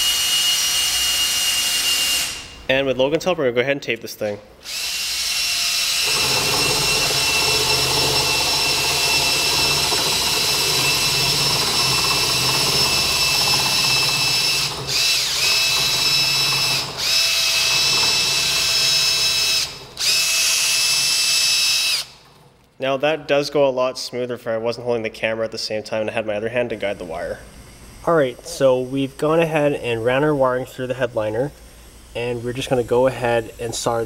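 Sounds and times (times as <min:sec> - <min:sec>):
cordless drill motor whine: 0:04.6 - 0:22.2.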